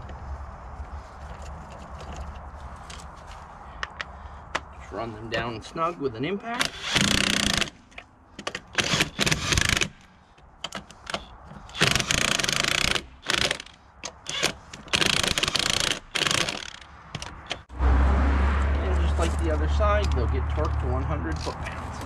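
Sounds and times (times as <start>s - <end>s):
impact wrench bursts: 6.6s - 7.8s, 8.8s - 10.0s, 11.1s - 16.9s.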